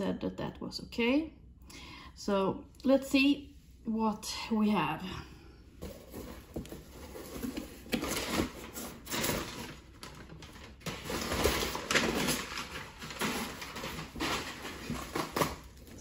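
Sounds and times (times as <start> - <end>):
cardboard parcel rustling: 5.8 - 16.0.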